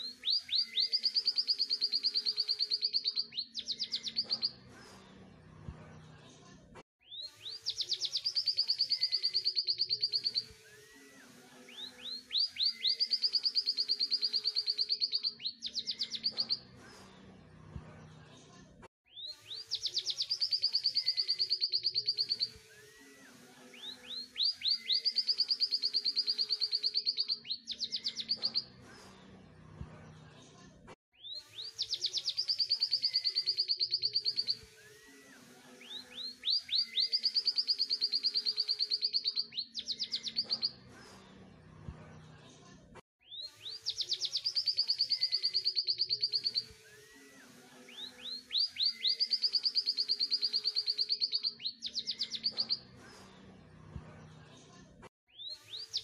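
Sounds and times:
canary singing trills: 0.0 - 4.6, 7.0 - 10.6, 11.7 - 16.6, 19.1 - 22.6, 23.7 - 28.7, 31.2 - 35.0, 35.8 - 40.8, 43.2 - 46.8, 47.8 - 52.8.

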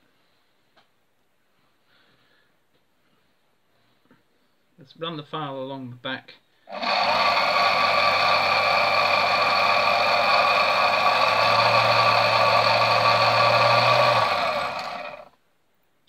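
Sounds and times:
file scraping spinning wheel: 6.7 - 15.3
lathe running down: 6.7 - 15.4
lathe whining: 6.7 - 15.4.

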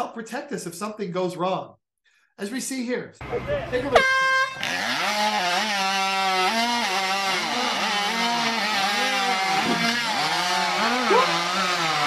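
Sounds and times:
chainsaw cutting wood: 4.4 - 12.0.

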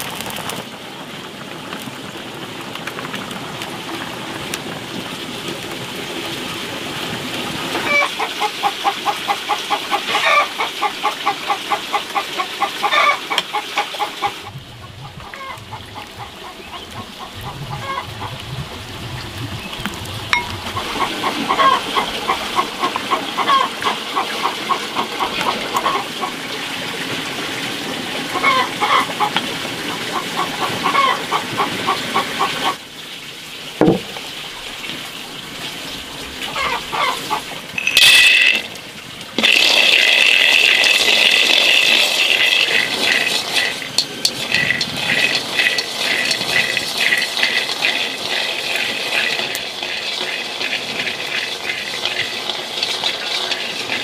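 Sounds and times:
chickens clucking: 7.8 - 26.6, 28.2 - 32.8, 36.4 - 37.7, 40.9 - 54.0
beans poured into metal wok: 37.8 - 38.7, 39.4 - 54.0.

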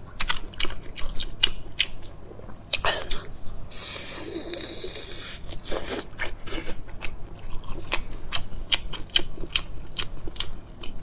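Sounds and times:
chewing and biting: 0.1 - 3.3, 5.5 - 11.0.

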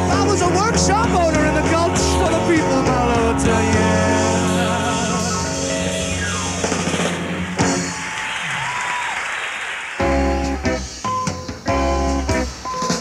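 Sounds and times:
live rock band playing: 0.0 - 8.4, 9.9 - 13.0
audience applause: 6.8 - 10.7.

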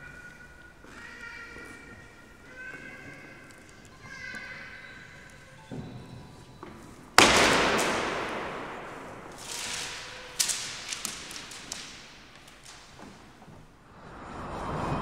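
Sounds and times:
loud crack-like hit: 7.2 - 11.9
paper sheets landing on floor: 7.2 - 13.6.

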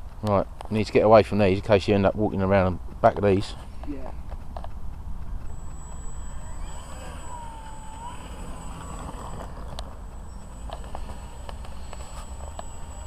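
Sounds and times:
faint high whine: 5.1 - 13.0.

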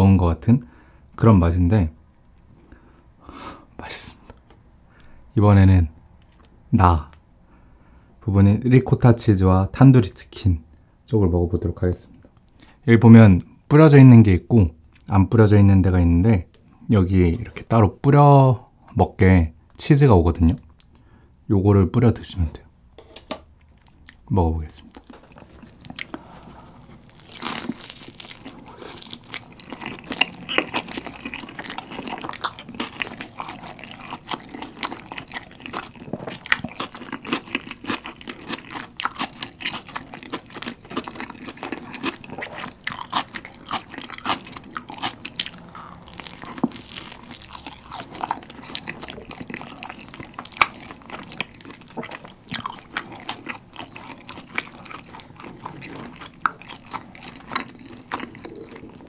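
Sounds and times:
chewing mouth clicks and crunches: 24.9 - 59.0
person biting into pizza: 25.7 - 35.6.

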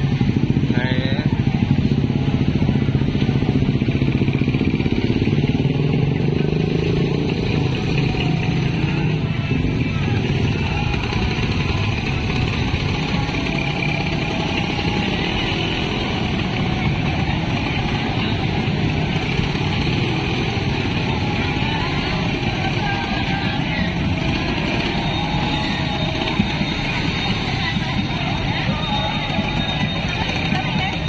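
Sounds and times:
motorcycle engines running: 0.0 - 31.0.

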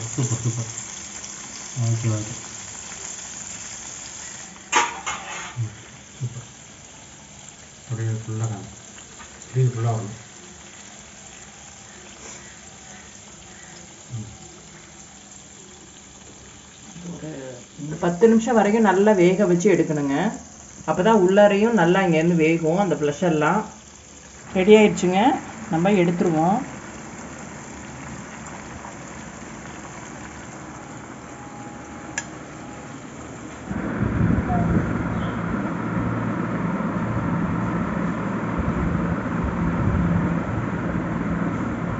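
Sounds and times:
oil sizzling and crackling: 0.0 - 41.9.

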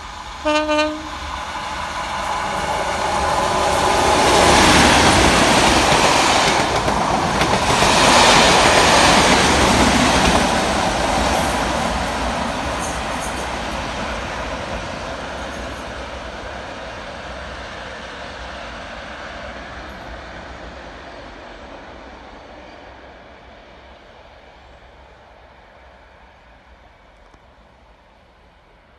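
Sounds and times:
diesel locomotive engines: 0.0 - 28.9
train wheels on rails: 0.0 - 28.9.

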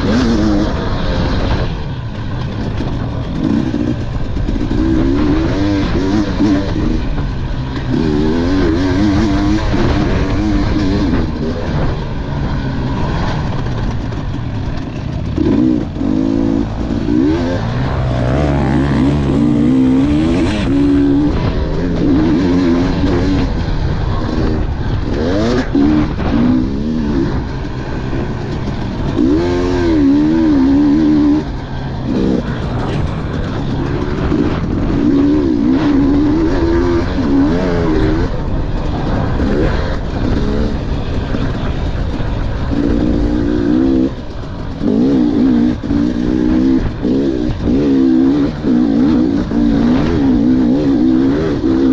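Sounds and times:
dirt bike engine revving: 0.0 - 51.9.

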